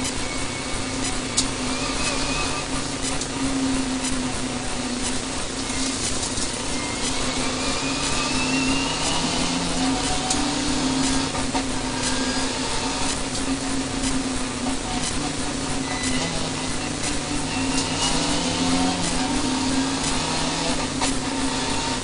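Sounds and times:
rally car engine and road noise: 0.0 - 22.0
rising whine: 0.0 - 22.0.

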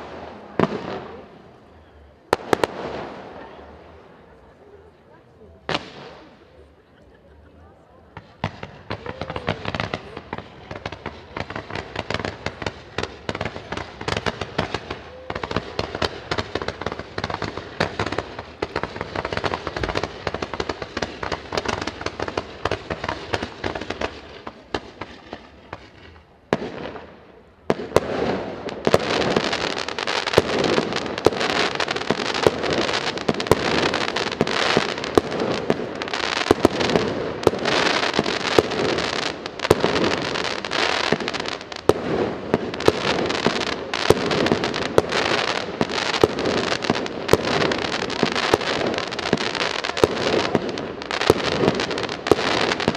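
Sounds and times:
fireworks crackling and popping: 0.0 - 52.9.

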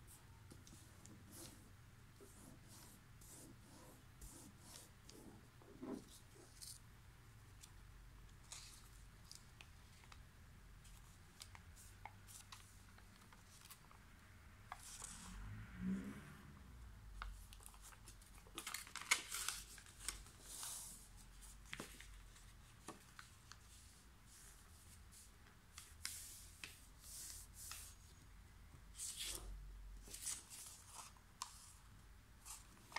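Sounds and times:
paper being folded and creased: 17.4 - 24.6, 29.0 - 31.7.

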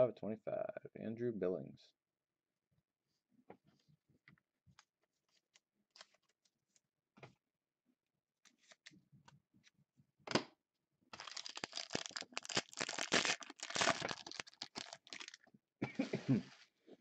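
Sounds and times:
foil pack tearing and crinkling: 11.2 - 15.4.

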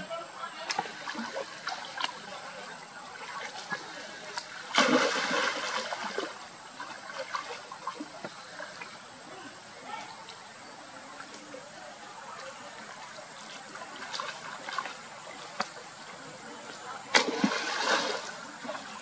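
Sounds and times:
water splashing: 0.5 - 9.1, 12.5 - 15.9, 16.8 - 19.0.

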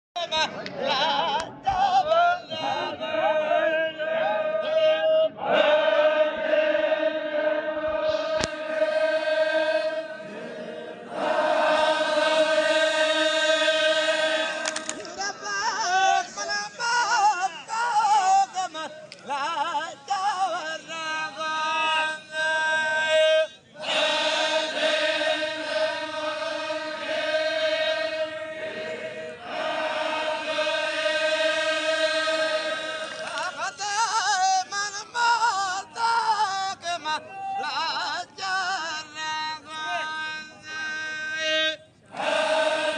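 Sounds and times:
group of men chanting: 2.0 - 17.1, 21.3 - 33.7, 42.1 - 42.9.

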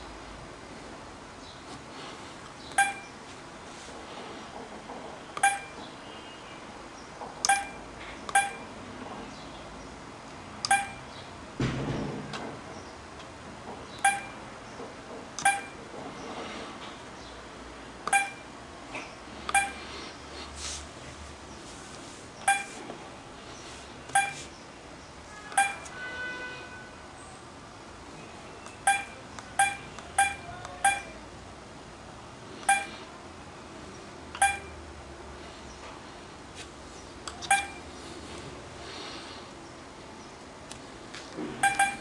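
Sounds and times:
high key-press beeps: 2.7 - 3.2, 5.4 - 5.8, 7.4 - 8.7, 10.6 - 11.1, 14.0 - 14.4, 15.4 - 15.8, 18.0 - 19.8, 22.4 - 22.8, 24.1 - 24.5, 25.5 - 25.9, 28.6 - 31.2, 32.6 - 33.0, 34.3 - 34.8, 37.3 - 37.9, 41.6 - 42.0.

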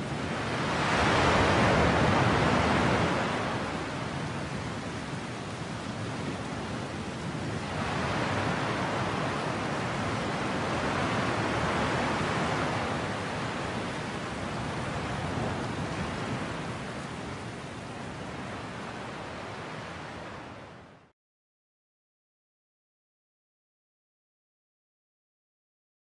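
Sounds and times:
sea waves rushing: 0.0 - 21.0.

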